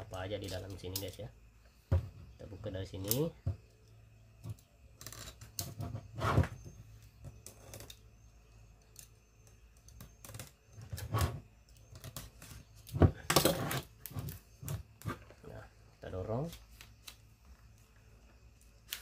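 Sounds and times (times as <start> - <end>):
knife scraping cardboard: 5.7 - 6.6.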